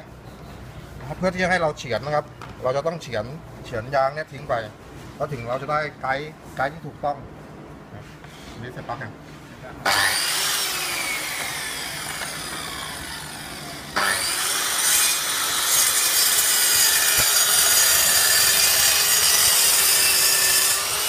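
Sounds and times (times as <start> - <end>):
track saw motor whining: 9.9 - 21.0.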